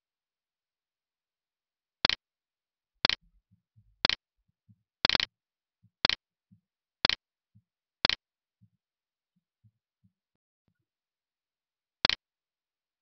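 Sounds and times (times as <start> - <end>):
clock ticking: 3.0 - 8.2
faint low thumps: 3.2 - 4.9.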